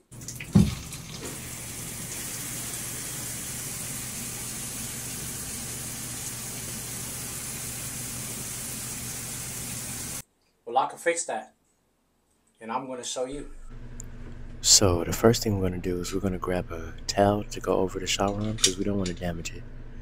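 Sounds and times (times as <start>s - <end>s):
shower head spraying: 0.5s - 10.2s
steady low hum: 13.3s - 20.0s.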